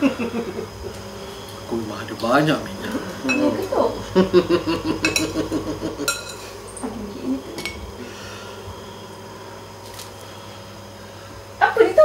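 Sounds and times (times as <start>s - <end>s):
spoon clinking ceramic bowl: 6.1s - 6.4s.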